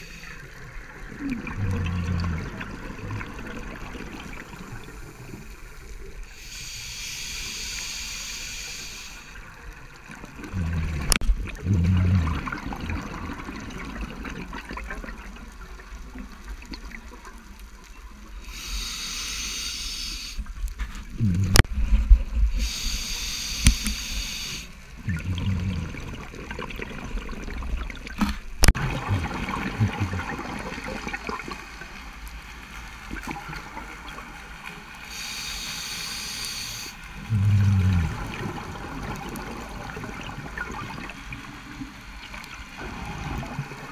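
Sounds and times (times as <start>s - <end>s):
bubbling exhalation: 1.1s - 4.6s, 10.4s - 15.1s, 21.1s - 21.7s, 25.0s - 31.6s, 37.2s - 41.1s
diver breathing through regulator: 18.4s - 20.4s.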